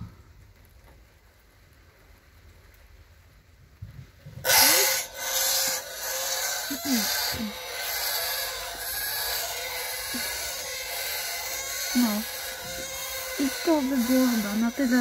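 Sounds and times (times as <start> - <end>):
low squeaks: 4.4 - 15.0.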